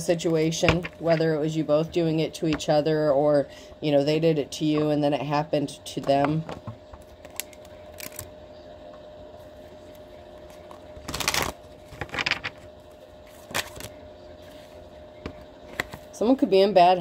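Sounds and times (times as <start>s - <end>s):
faint steady hum: 0.0s - 17.0s
cards rustling and tapping: 10.5s - 12.7s, 13.3s - 13.9s.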